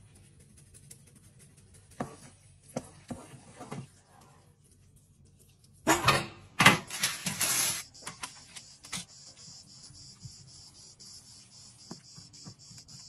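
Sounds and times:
high insect buzz: 7.7s - 13.0s.

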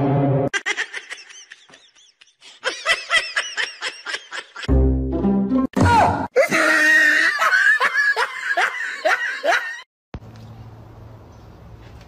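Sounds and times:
high-pitched giggling: 0.5s - 4.7s.

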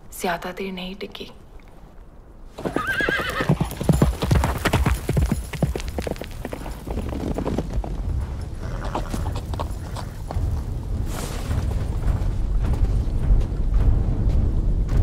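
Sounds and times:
horse hoof beats galloping: 2.6s - 15.0s
low rumble: 7.3s - 15.0s.

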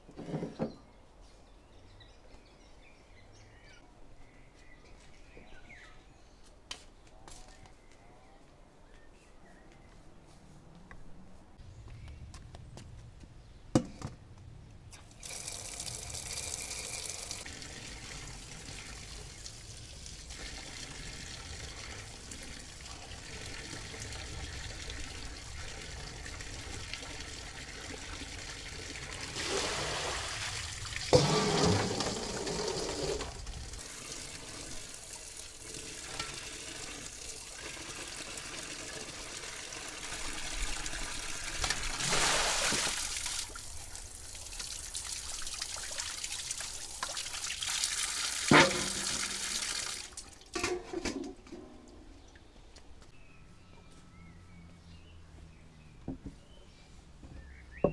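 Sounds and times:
water running into metal bowl: 15.2s - 41.2s, 44.4s - 51.2s.

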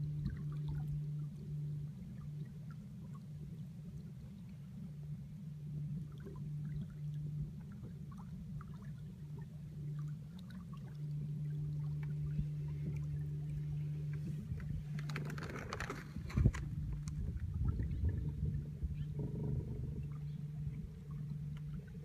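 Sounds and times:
water ticking against hull: 0.0s - 4.6s, 5.2s - 22.0s
boat motor humming: 0.0s - 22.0s.

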